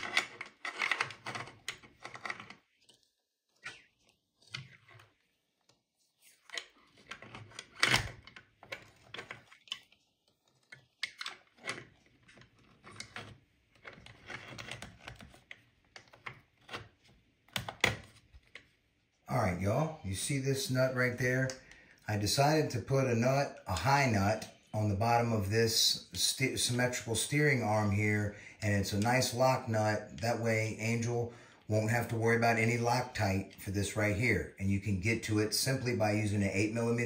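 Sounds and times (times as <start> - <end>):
plastic and metal parts clicking: 0.0 - 3.0, 6.4 - 18.8.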